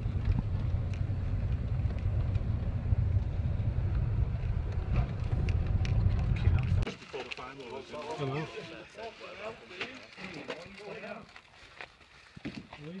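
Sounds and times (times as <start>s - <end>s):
car engine and road noise: 0.0s - 6.9s.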